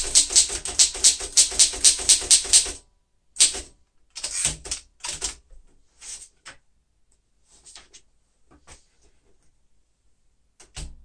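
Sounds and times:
typewriter keystroke clacks: 0.0 - 2.8, 3.4 - 5.4.

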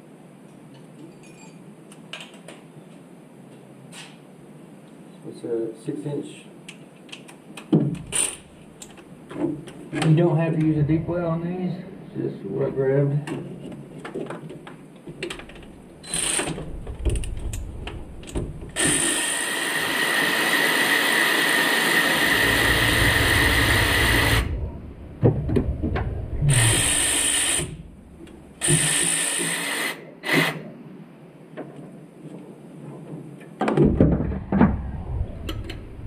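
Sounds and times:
cordless power tool spinning: 26.5 - 27.8.

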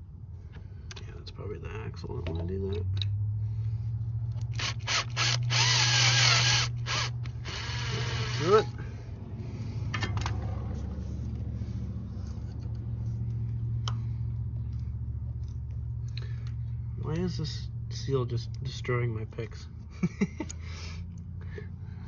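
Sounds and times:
steady low hum: 0.0 - 22.0
power drill drilling: 4.5 - 8.7.

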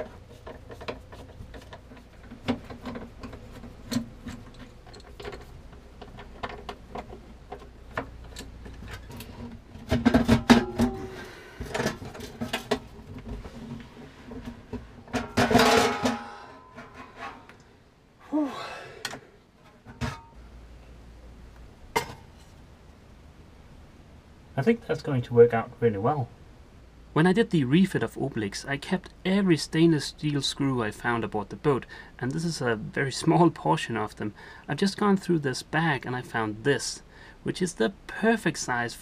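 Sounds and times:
metal sink clattering with dishes: 15.1 - 17.2.

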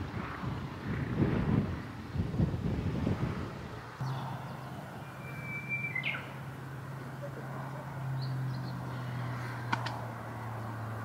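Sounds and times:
wind buffeting microphone: 0.0 - 6.6
faint bird chirp: 4.0 - 6.4.

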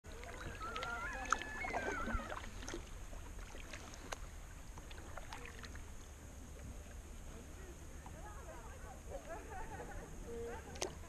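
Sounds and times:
paddle splashes and drips: 0.1 - 8.3, 10.4 - 11.0.

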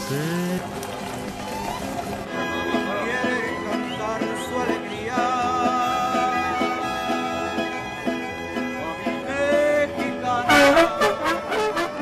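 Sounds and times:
strummed guitars: 2.1 - 12.0
violin melody: 2.1 - 12.0
trumpets playing: 10.4 - 12.0.

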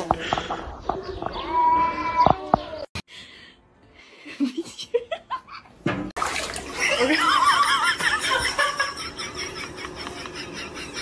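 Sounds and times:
water splashing in a tub: 5.9 - 8.2
person laughing: 6.8 - 11.0.

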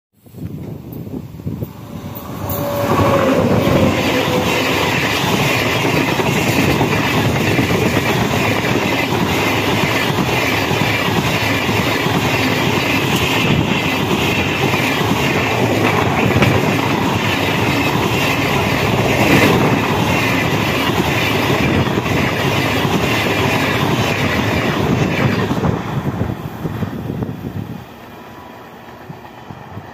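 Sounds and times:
train wheels clattering: 0.6 - 27.0
falling pitch tone: 1.8 - 5.5, 17.6 - 20.7.

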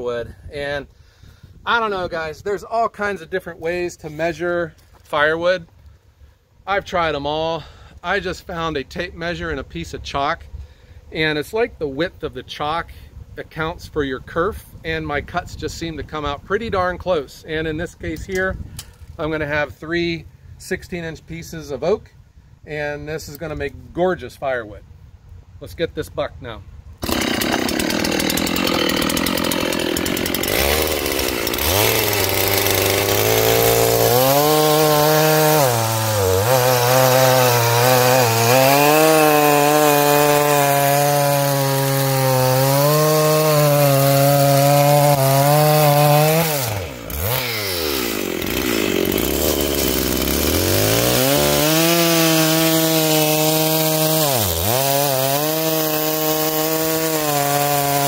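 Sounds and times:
chainsaw cutting log: 27.0 - 58.0.

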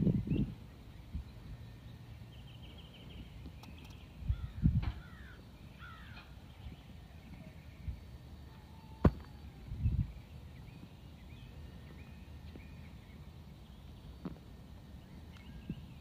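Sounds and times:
birds chirping faintly: 0.0 - 16.0
dull thump: 9.0 - 9.3.

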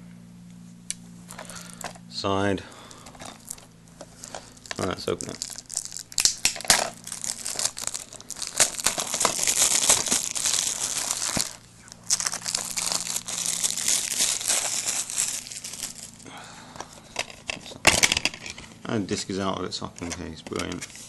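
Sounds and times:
cellophane crinkling and tearing: 3.1 - 16.2.

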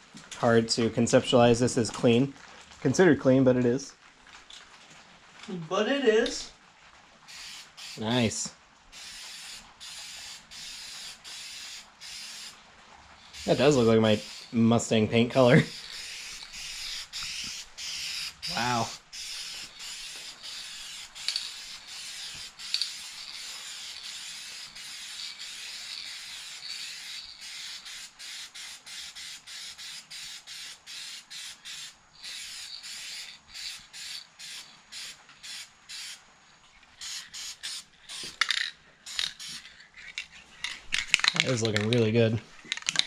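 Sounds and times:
aerosol spray can hissing: 7.3 - 8.1, 8.9 - 12.6, 13.3 - 14.6, 15.5 - 36.2, 37.0 - 39.7.

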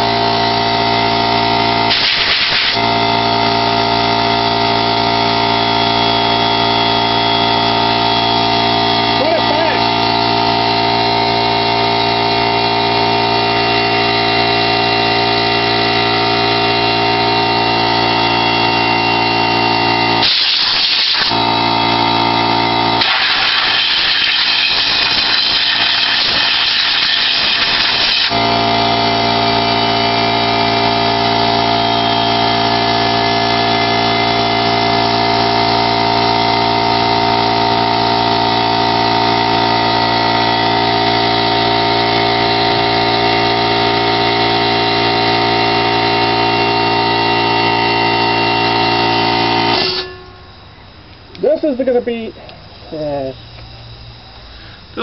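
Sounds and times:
blow gun hissing air blast: 0.0 - 5.9, 9.1 - 36.3
air compressor running: 0.0 - 55.0.

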